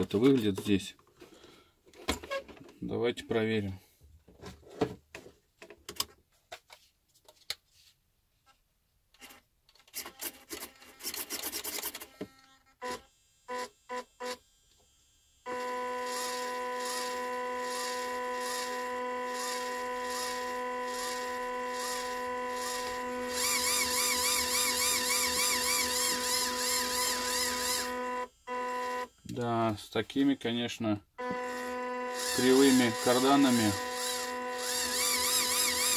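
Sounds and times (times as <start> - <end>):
electric motor and gearbox whining: 10.0 - 29.8, 31.2 - 35.9.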